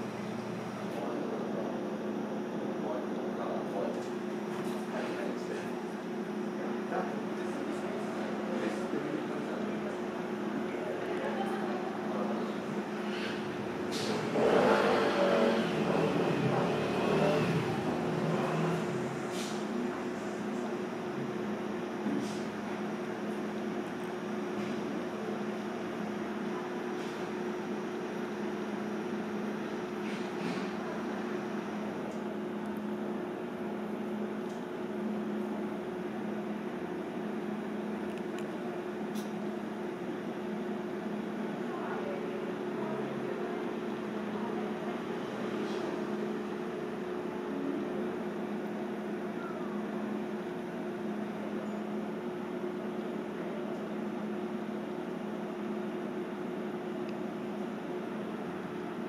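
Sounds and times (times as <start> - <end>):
machinery hum: 0.0 - 59.0
machinery hiss: 12.6 - 20.6.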